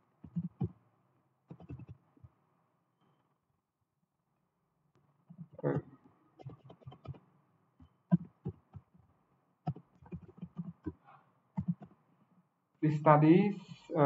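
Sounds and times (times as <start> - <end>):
keyboard typing: 0.3 - 0.7, 1.5 - 2.0, 6.4 - 7.2, 9.7 - 11.0, 11.6 - 11.9.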